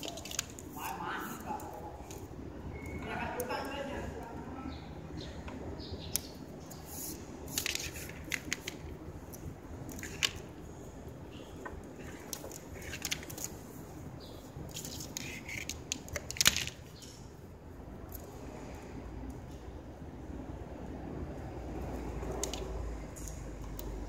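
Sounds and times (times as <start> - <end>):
wicker strand rustling: 0.0 - 2.3, 6.7 - 10.5.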